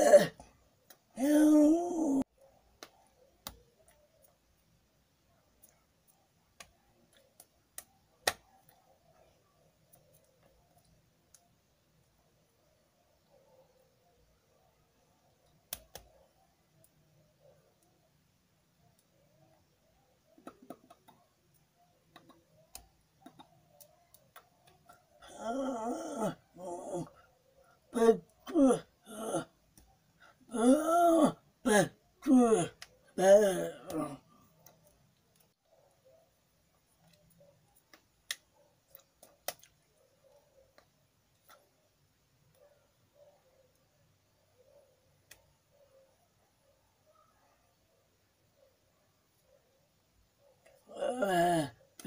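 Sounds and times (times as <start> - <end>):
speech-like vocalizing: 1.2 - 2.3, 27.9 - 29.5, 30.5 - 34.3
lip and tongue clicks: 20.3 - 25.2, 37.0 - 40.0, 40.6 - 41.8.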